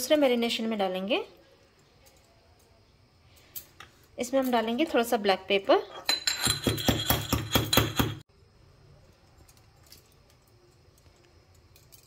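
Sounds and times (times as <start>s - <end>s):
pestle pounding in steel mortar: 6.2s - 8.2s.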